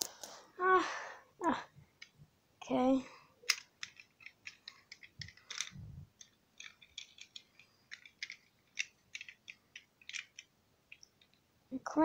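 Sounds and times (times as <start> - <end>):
toy cars clicking and tapping: 3.5 - 11.4.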